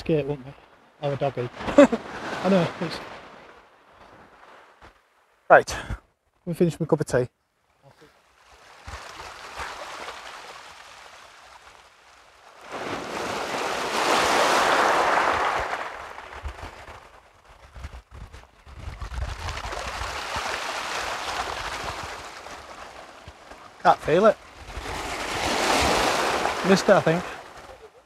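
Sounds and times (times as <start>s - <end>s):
waves washing over pebble beach: 1.3s - 3.5s, 8.4s - 17.2s, 19.1s - 27.8s.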